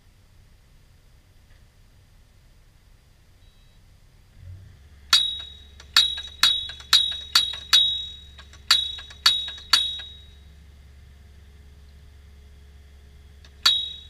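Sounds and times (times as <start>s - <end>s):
post thumper hammering metal post: 5.1s - 10.3s, 13.5s - 14.0s.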